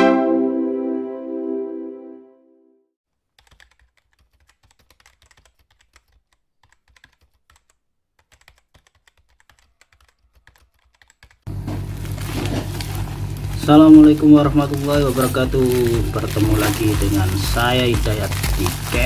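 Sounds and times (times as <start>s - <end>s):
electronic music: 0.0s - 2.6s
keyboard typing clicks: 3.4s - 11.4s.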